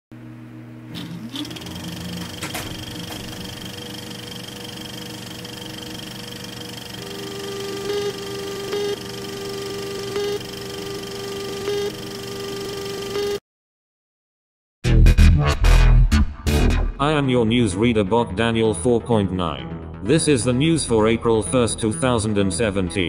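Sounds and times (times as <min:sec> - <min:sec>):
electronic hum and steady tones: 0:00.2 - 0:13.4
steady telephone line tone: 0:01.2 - 0:13.4.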